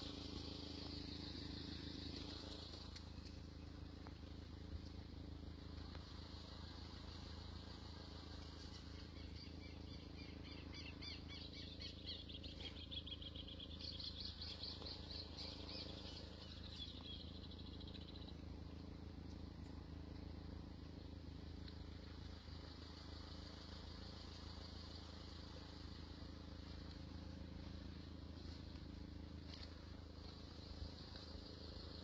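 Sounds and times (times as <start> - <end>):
faint low hum: 0.0 - 32.0
bird chirping in fast trills: 8.5 - 19.8.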